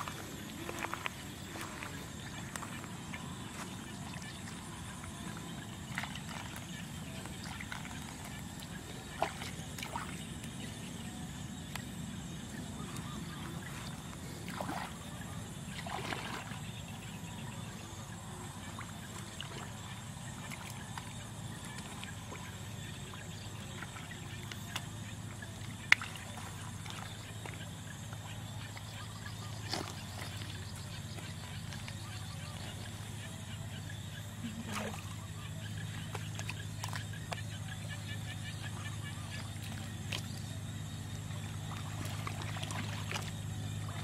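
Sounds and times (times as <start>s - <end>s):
muddy water sloshing and splashing: 0.0s - 44.0s
steady low hum: 0.0s - 44.0s
sharp splashes: 3.6s - 10.3s, 12.8s - 16.7s, 25.4s - 27.7s, 34.4s - 44.0s.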